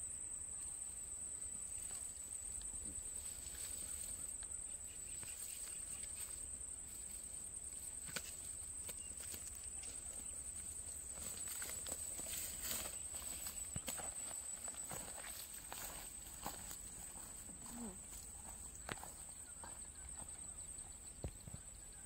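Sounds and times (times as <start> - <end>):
insects chirring: 0.0 - 22.0
dry grass rustling: 3.0 - 20.3
footsteps swishing through grass: 11.1 - 17.4.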